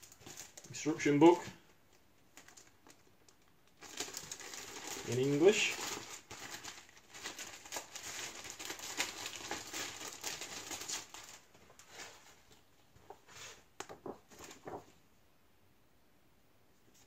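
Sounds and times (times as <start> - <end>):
plastic wrapping crinkling: 0.0 - 15.0
paper rustling: 2.3 - 15.0.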